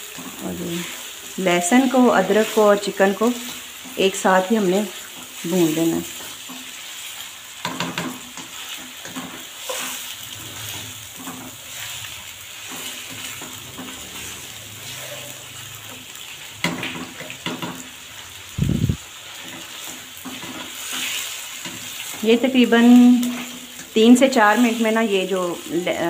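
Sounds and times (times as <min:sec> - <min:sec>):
chicken sizzling in a wok: 0:00.0 - 0:26.0
spatula scraping and tapping pan: 0:06.1 - 0:18.0, 0:19.3 - 0:25.0.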